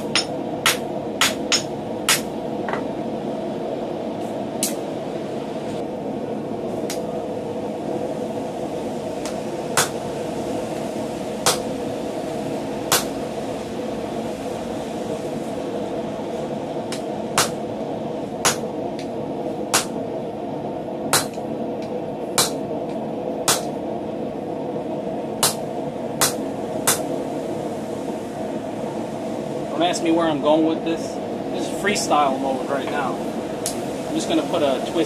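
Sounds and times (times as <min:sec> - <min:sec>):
hammer striking hot steel: 0:00.0 - 0:02.9, 0:09.2 - 0:10.0, 0:11.4 - 0:11.7, 0:12.9 - 0:13.2, 0:16.9 - 0:17.6, 0:18.4 - 0:19.1, 0:19.7 - 0:20.0, 0:21.1 - 0:22.7, 0:23.4 - 0:23.8, 0:25.4 - 0:27.1
steady rushing noise: 0:00.0 - 0:35.0.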